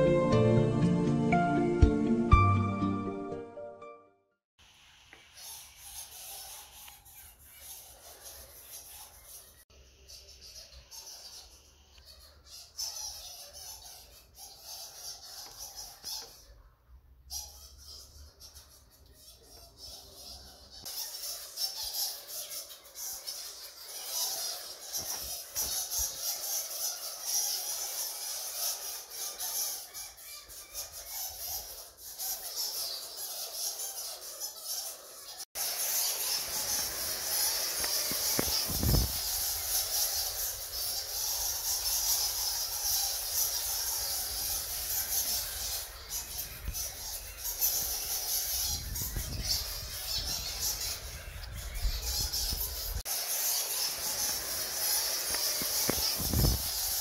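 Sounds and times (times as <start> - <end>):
bats squeaking: 5.4 - 16.6, 17.4 - 57.0.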